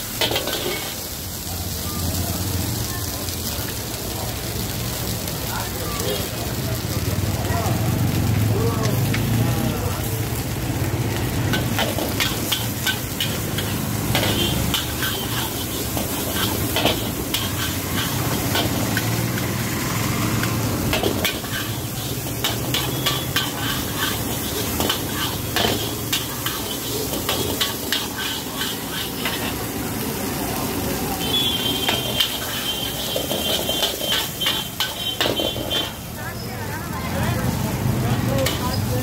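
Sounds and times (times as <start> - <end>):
metal spatula scraping wok: 0.0 - 1.1, 11.2 - 30.4, 31.2 - 36.1, 38.4 - 39.0
food sizzling: 0.0 - 39.0.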